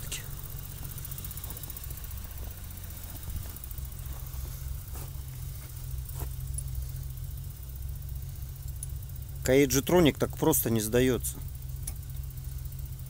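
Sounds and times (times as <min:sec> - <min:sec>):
car engine idling: 0:00.0 - 0:13.0
faint clicks: 0:11.8 - 0:12.1.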